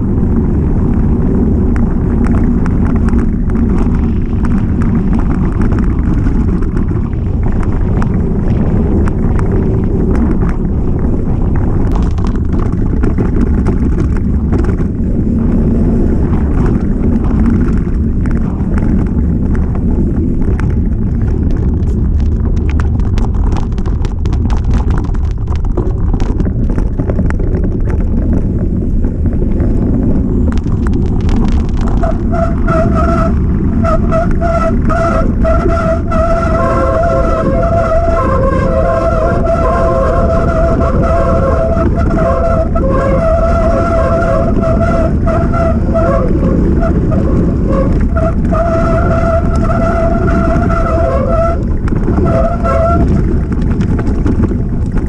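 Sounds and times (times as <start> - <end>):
bike rattling and knocking: 0.0 - 55.0
tyres rumbling on trail: 0.0 - 55.0
wind on microphone: 0.0 - 55.0.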